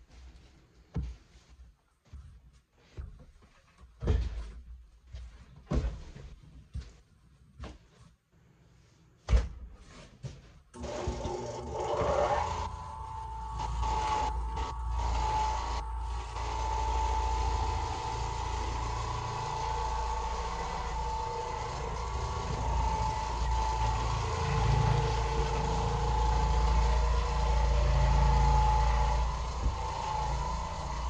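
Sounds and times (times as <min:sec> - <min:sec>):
floor machine motor humming: 0:10.8 - 0:31.0.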